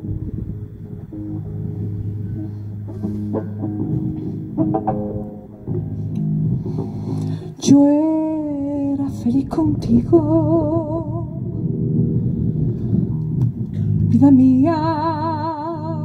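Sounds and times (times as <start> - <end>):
guitar plucking: 0.0 - 16.0
woman singing: 7.6 - 11.5, 14.1 - 16.0.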